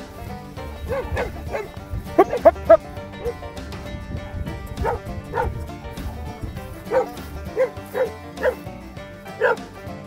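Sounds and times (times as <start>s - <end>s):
dog barking: 0.8s - 3.4s, 4.2s - 5.6s, 6.9s - 8.6s, 9.4s - 9.7s.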